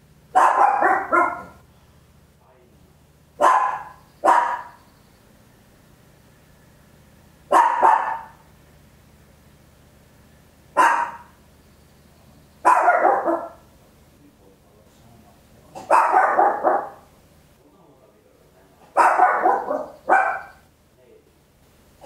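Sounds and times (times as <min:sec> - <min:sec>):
small dog barking: 0:00.3 - 0:01.6, 0:03.4 - 0:04.8, 0:07.5 - 0:08.4, 0:10.8 - 0:11.4, 0:12.6 - 0:13.7, 0:15.7 - 0:17.1, 0:18.8 - 0:20.7.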